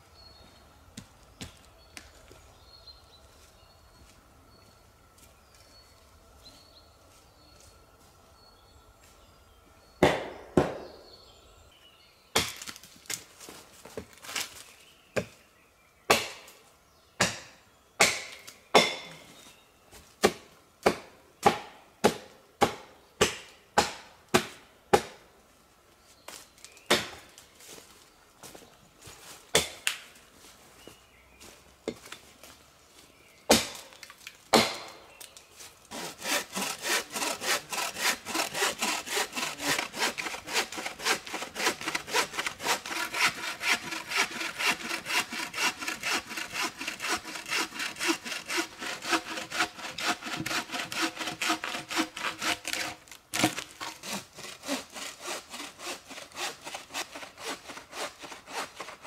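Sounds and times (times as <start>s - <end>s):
saw cutting through log: 35.9s - 59.0s.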